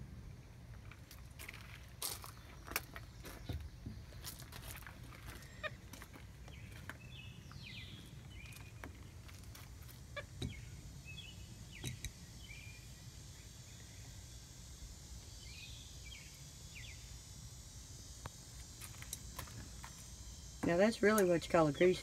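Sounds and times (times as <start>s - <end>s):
bird chirping: 5.1s - 9.4s, 10.1s - 14.2s.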